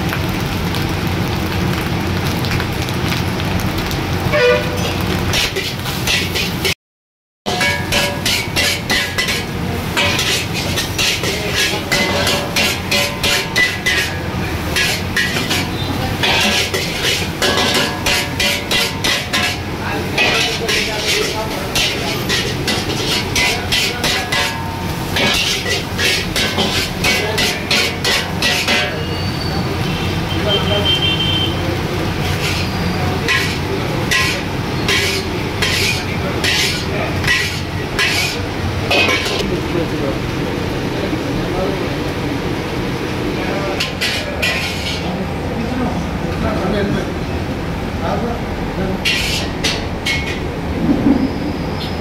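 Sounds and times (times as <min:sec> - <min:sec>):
metal spatula scraping a wok: 0:04.4 - 0:06.8, 0:07.5 - 0:29.6, 0:32.1 - 0:39.4, 0:43.7 - 0:45.1, 0:49.0 - 0:50.5.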